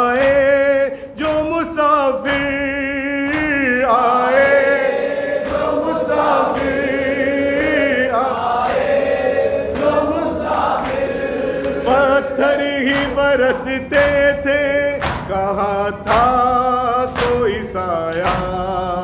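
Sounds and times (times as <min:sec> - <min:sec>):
man chanting a lament: 0:00.0 - 0:08.7, 0:09.9 - 0:19.0.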